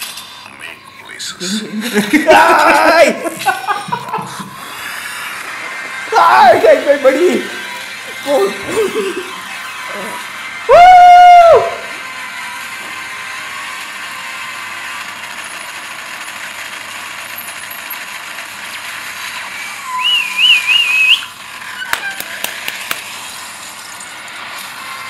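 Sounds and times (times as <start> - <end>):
loud warbling whistle: 19.4 - 22.4.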